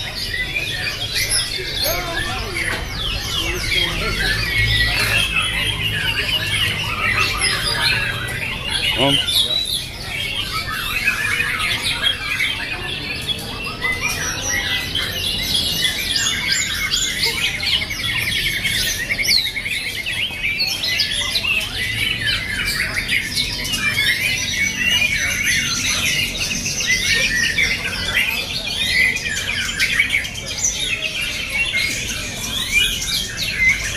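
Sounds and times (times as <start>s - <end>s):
songbirds singing chorus: 0.0s - 33.9s.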